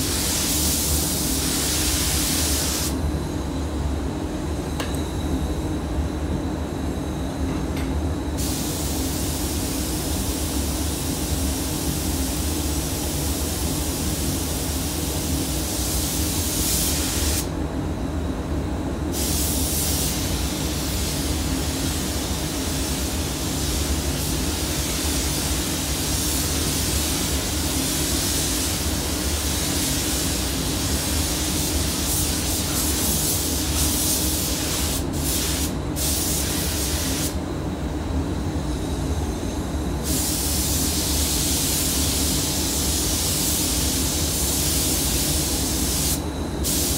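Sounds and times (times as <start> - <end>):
ventilation drone: 0.0 - 46.9
paint spray gun spraying: 43.0 - 46.9.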